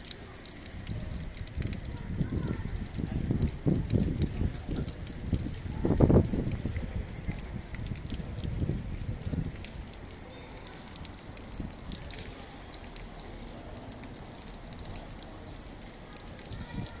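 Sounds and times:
wind rumbling on microphone: 0.6s - 9.9s.

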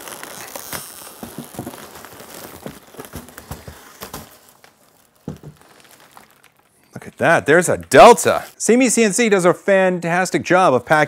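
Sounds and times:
foam packing rubbing: 0.0s - 8.6s
plastic bag crinkling: 0.0s - 8.6s.

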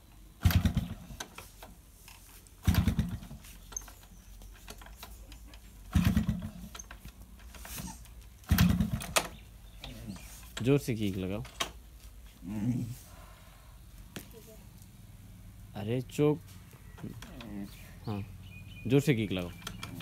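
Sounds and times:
engine putts dying out: 0.4s - 1.2s, 2.6s - 3.5s, 5.8s - 6.9s, 8.4s - 9.6s
motorcycle engine kick-start: 0.4s - 1.7s, 2.6s - 4.1s, 4.7s - 7.8s, 8.4s - 9.4s, 18.4s - 20.0s.

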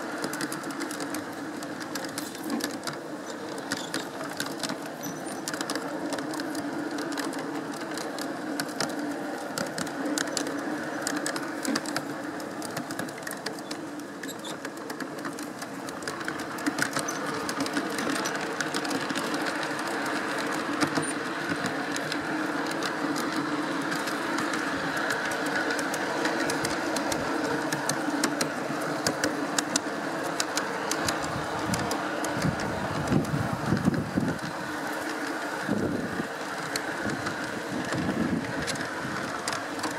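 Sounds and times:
model train running: 0.0s - 39.9s
wheels clicking over track: 0.0s - 39.9s
wind rumbling on microphone: 18.2s - 39.9s.

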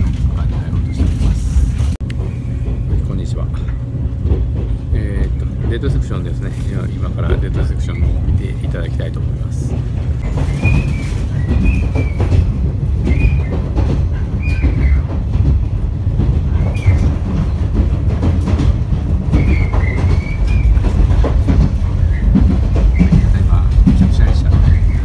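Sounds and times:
train running rumble: 0.0s - 25.0s
wheels clicking over rail joints: 0.0s - 25.0s
short high squeals: 10.2s - 12.2s.

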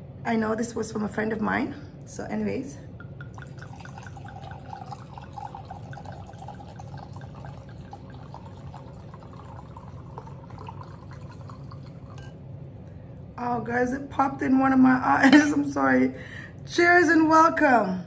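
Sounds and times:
wine pouring into a glass: 3.0s - 12.4s.

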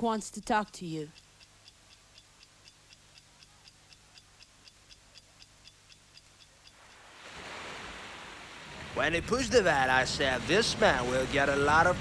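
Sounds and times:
clock ticking: 0.0s - 7.0s.

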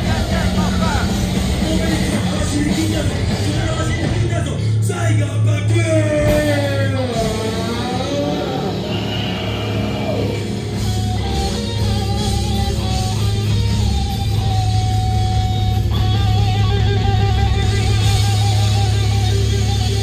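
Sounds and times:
live rock band playing: 0.0s - 20.0s
lead guitar with vibrato: 6.2s - 20.0s.

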